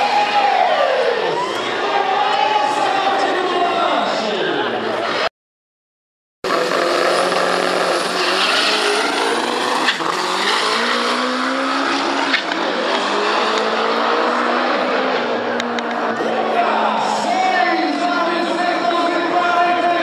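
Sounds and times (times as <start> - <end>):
race car engine revving: 6.4 - 16.3.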